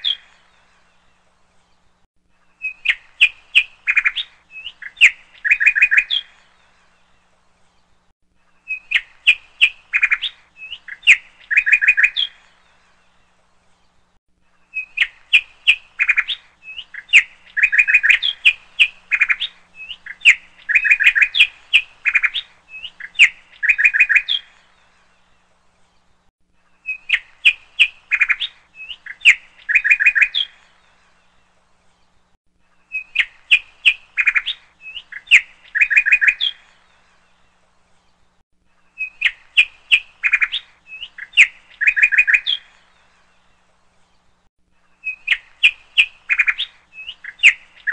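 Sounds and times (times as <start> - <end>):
birds chirping: 0.0 - 47.9.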